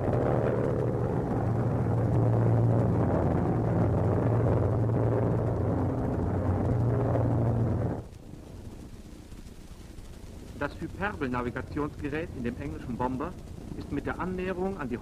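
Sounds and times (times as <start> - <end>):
piston aircraft engines droning: 0.0 - 15.0.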